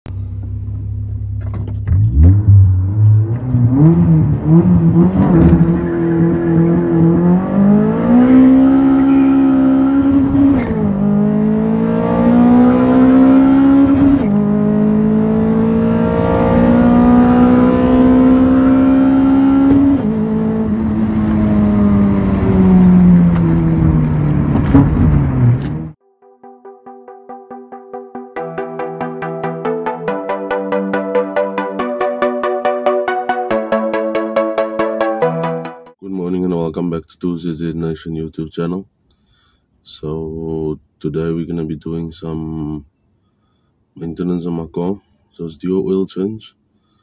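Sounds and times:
car engine accelerating hard: 1.4s - 26.0s.

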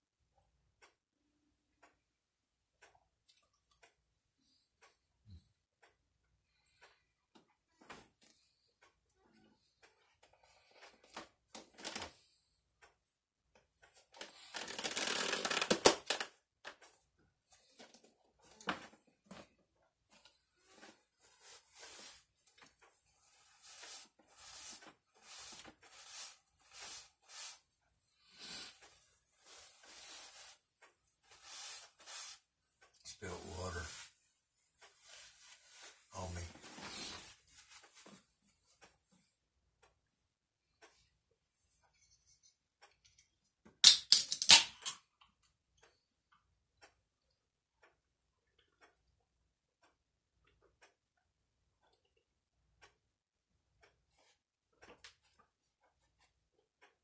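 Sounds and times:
paper napkins rustling: 23.2s - 27.6s, 29.3s - 30.6s, 31.2s - 32.4s.

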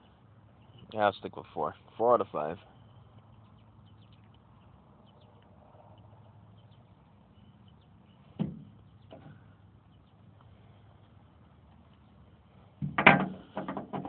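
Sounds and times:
birds chirping: 0.0s - 12.8s
sharp thump: 12.8s - 14.0s.

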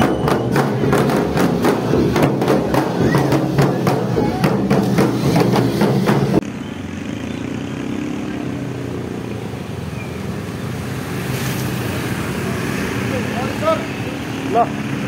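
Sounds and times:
rhythmic street drumming: 0.0s - 6.4s
scooter and motorcycle engines: 0.0s - 15.0s.

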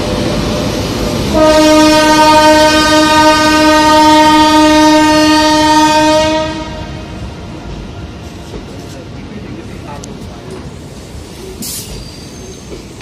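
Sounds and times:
train rolling rumble: 0.0s - 13.0s
locomotive air horn: 1.3s - 7.0s.

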